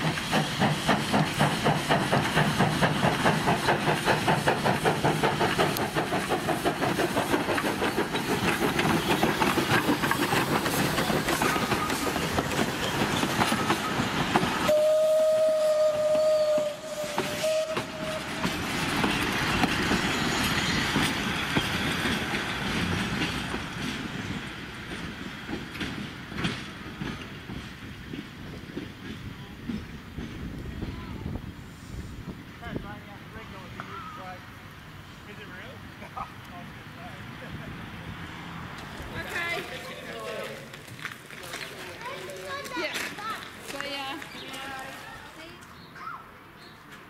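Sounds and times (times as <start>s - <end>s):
train wheels clicking over rail joints: 0.0s - 15.1s, 15.8s - 31.4s, 38.7s - 44.8s
steam locomotive exhaust puffs: 0.0s - 32.8s
steam whistle: 14.7s - 18.6s.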